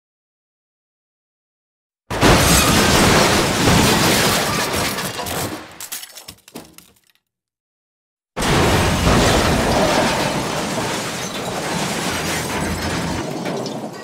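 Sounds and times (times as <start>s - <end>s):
loud smash and shattering: 2.1s - 6.9s, 8.4s - 14.0s
pieces clattering down: 2.1s - 7.2s, 9.0s - 14.0s.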